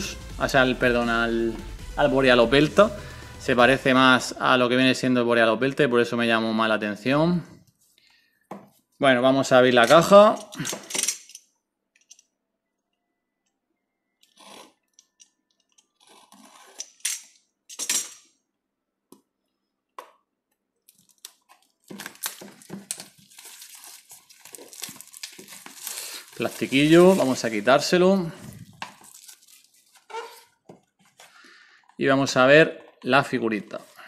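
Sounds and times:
plastic wrap crinkling: 20.8 - 31.8.

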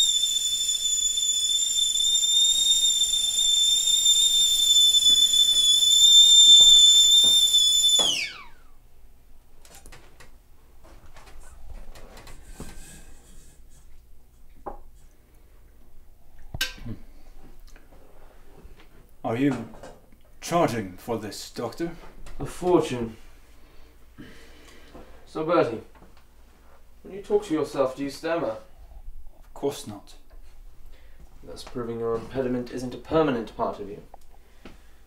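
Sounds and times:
high steady whistle: 0.0 - 8.8.

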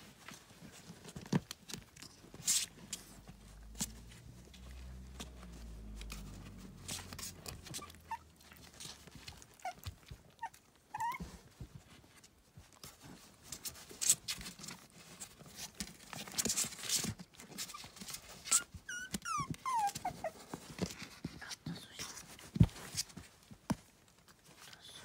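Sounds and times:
paws scratching cardboard: 0.0 - 25.0
puppies squeaking: 6.8 - 11.3, 17.6 - 20.4.

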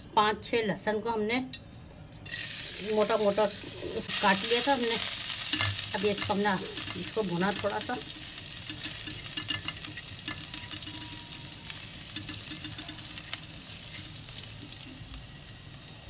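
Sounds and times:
garlic sizzling in hot oil: 2.2 - 16.0
spatula scraping and tapping pan: 8.6 - 14.8.

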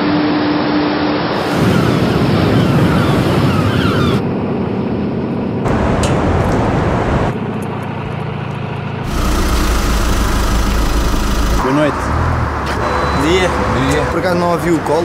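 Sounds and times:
wind noise: 1.3 - 4.8.

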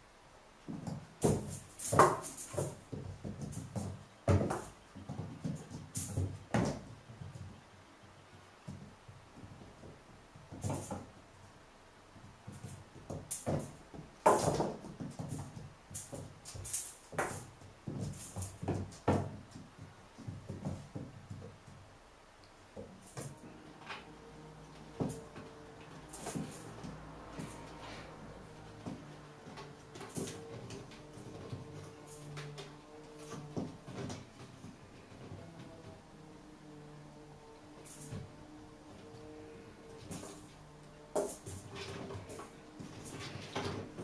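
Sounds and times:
kitten paws on laminate floor: 22.8 - 36.6.

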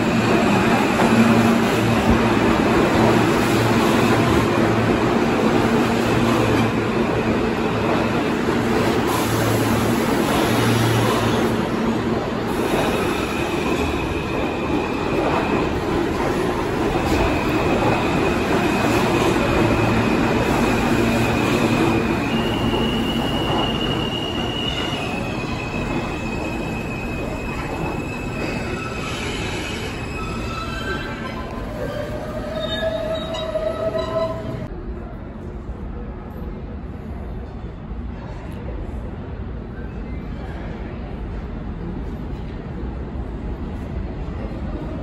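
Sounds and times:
train wheels rumbling on rails: 0.0 - 45.0
high-pitched wheel squeal: 21.0 - 34.6.

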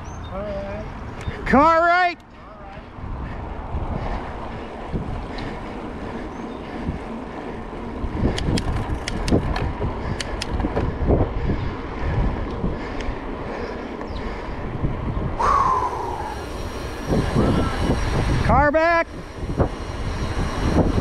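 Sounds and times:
freeway traffic rushing: 0.0 - 21.0
wind buffeting the microphone: 2.3 - 21.0
sharp ticks: 8.3 - 10.8
short falling whine: 15.4 - 21.0
loud hiss: 15.7 - 21.0.

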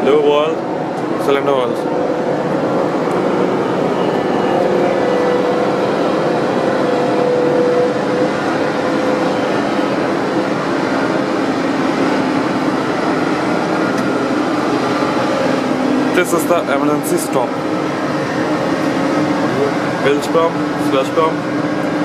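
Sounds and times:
ship machinery drone: 0.0 - 22.0.

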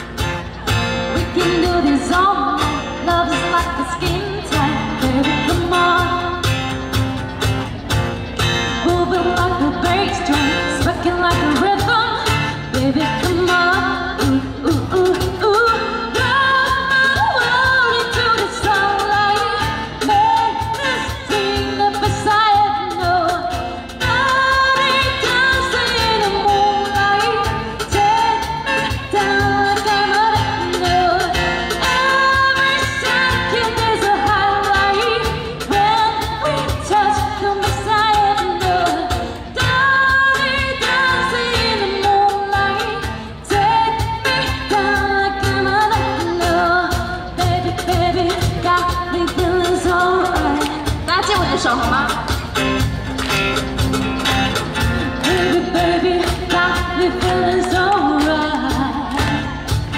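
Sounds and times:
woman singing pop song: 0.0 - 52.4, 55.1 - 59.9.

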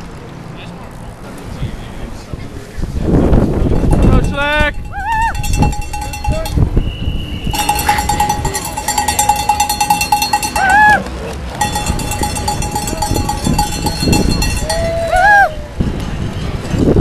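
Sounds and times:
cowbell rung rapidly: 3.6 - 6.8, 7.5 - 11.0, 11.6 - 15.1
person whooping: 4.9 - 5.4, 10.6 - 11.0, 14.6 - 15.8.

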